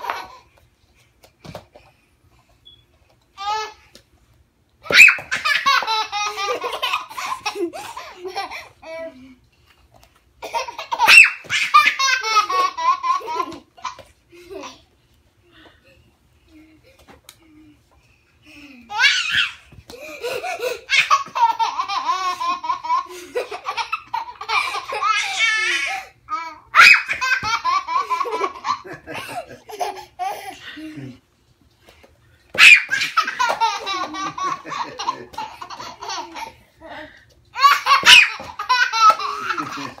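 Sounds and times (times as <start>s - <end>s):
toddler laughing: 18.9s - 31.2s, 32.6s - 36.6s, 37.6s - 40.0s.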